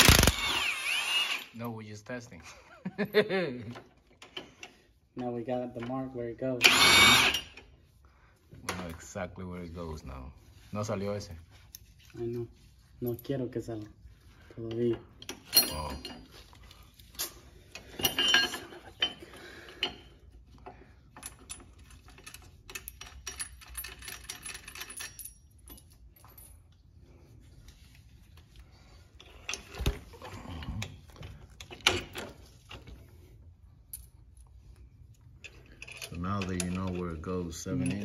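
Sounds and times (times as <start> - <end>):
small metal parts clinking: 15.2 - 16.3, 17.1 - 19.2, 21.1 - 26.8, 35.2 - 38.0.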